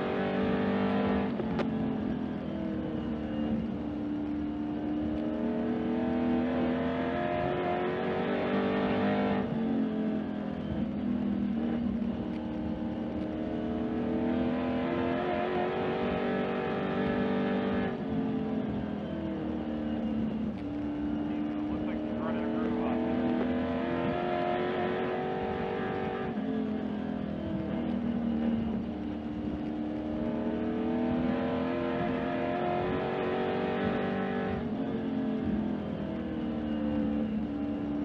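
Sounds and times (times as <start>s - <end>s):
race car engine revving: 0.0s - 38.0s.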